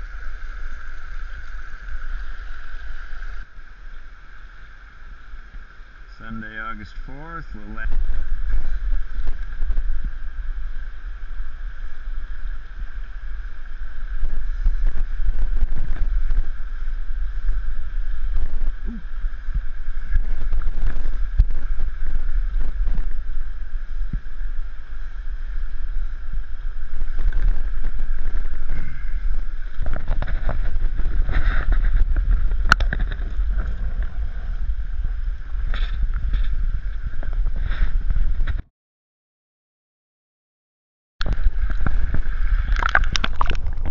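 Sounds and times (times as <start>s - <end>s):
small boat engine rumble: 0.0s - 38.6s
wind on microphone: 0.0s - 38.7s, 41.2s - 43.9s
splashes and knocks: 41.2s - 43.9s.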